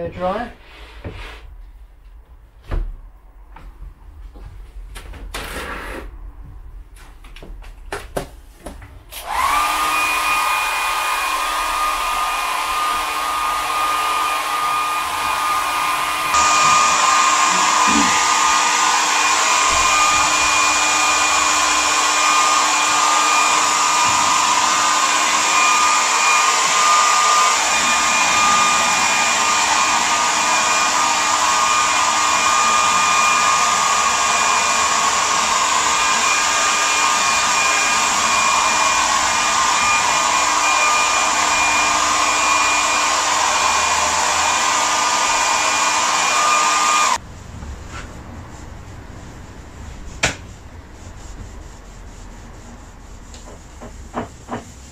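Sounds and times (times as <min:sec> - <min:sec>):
hair dryer blowing with whine: 0:08.6 - 0:50.8.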